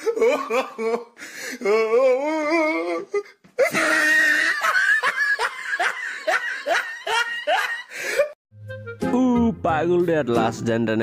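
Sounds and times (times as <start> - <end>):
person whimpering: 0.0 - 4.6
person crying out: 1.6 - 6.6.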